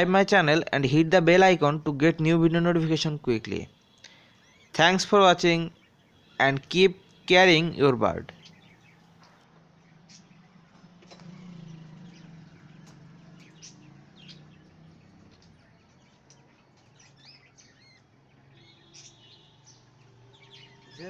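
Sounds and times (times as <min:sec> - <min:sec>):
budgerigars chirping: 0:08.4 - 0:09.4, 0:10.0 - 0:10.4, 0:11.3 - 0:21.0.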